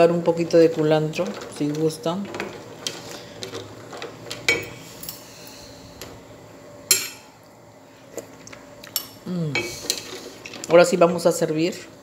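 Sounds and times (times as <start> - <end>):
spoon stirring mussels in pot: 0.0 - 5.2, 9.6 - 11.3.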